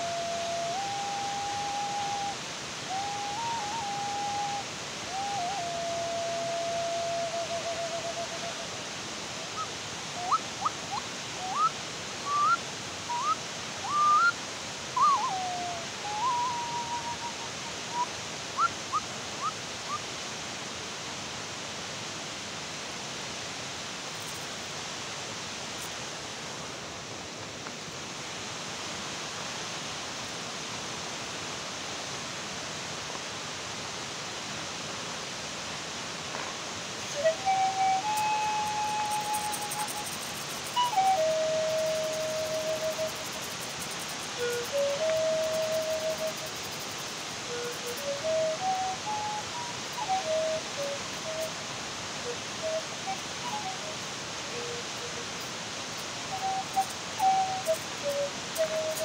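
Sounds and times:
flute-like wind instrument: 0.0s - 20.0s, 36.8s - 59.0s
steady hiss: 0.0s - 59.0s.

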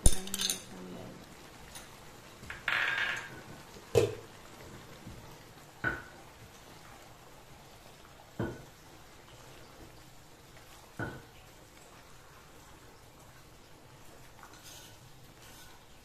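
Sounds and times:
sauce simmering: 0.8s - 16.0s
spatula scraping a wok: 14.6s - 16.0s.

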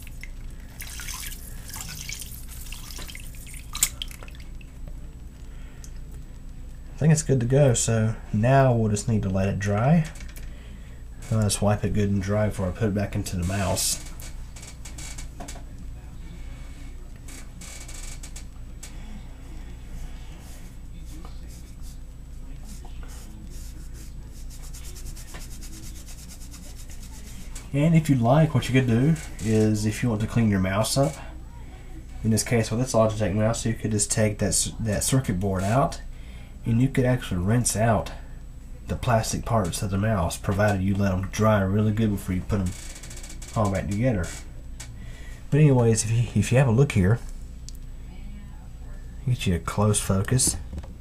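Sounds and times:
water splashing into sink: 0.0s - 4.8s
steady low hum: 0.0s - 51.0s.

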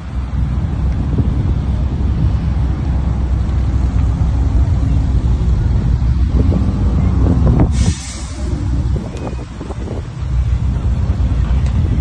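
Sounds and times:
car exhaust rumble: 0.0s - 12.0s
short rushing hiss: 7.7s - 8.7s.

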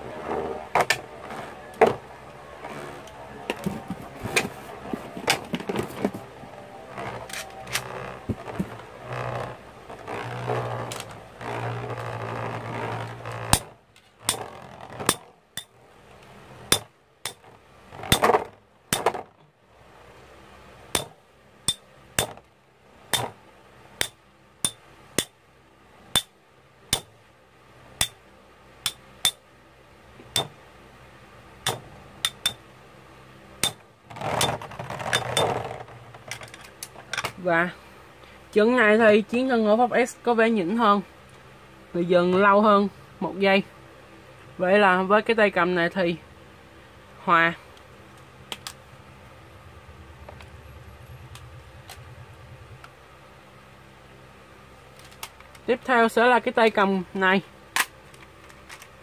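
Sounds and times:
grinding scrapes: 0.0s - 15.3s, 33.6s - 37.1s.

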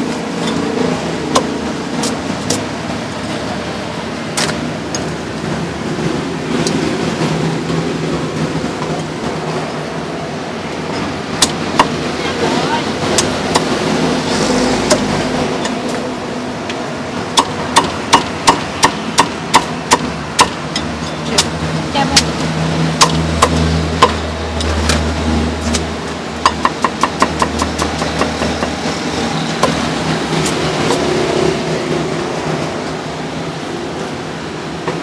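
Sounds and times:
meat cleaver chopping on wooden block: 17.4s - 20.6s.

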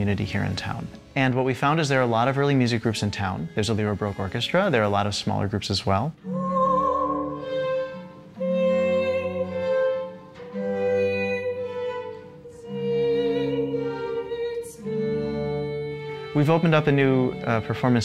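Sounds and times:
string orchestra: 0.0s - 18.0s
soprano singing with vibrato: 6.2s - 18.0s.

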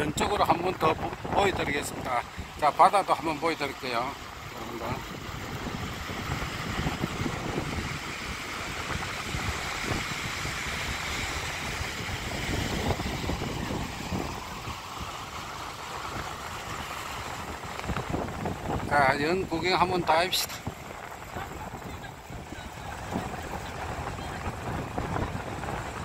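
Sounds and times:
waves breaking on beach: 0.0s - 26.0s
wind buffeting microphone: 0.0s - 26.0s.

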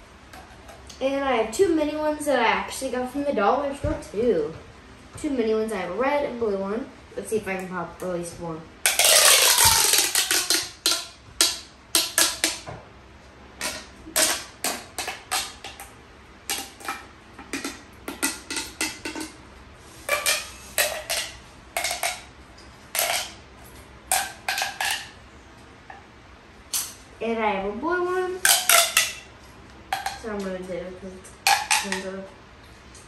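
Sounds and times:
plastic pop tube snapping: 8.9s - 12.7s, 13.6s - 15.9s, 24.1s - 25.1s, 28.4s - 29.2s, 29.9s - 30.2s.

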